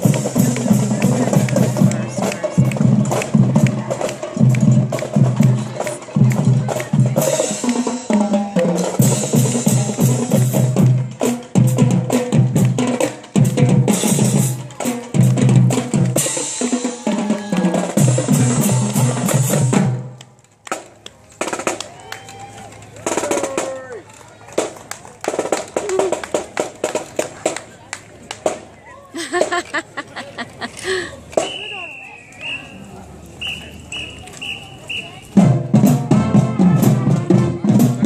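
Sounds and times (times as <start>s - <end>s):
marching drumline playing: 0.0s - 20.8s, 21.4s - 21.8s, 23.0s - 23.8s, 24.6s - 27.6s, 33.4s - 38.0s.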